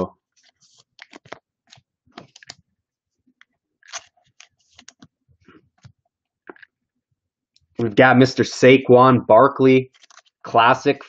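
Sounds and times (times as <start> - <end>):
trading cards clicking and rustling: 0.4 - 2.6, 3.3 - 5.2, 9.9 - 10.4.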